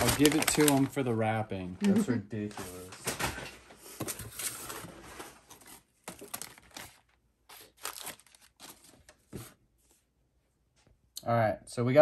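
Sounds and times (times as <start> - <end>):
paper and plastic crinkling: 0.0 - 1.4, 2.4 - 9.6.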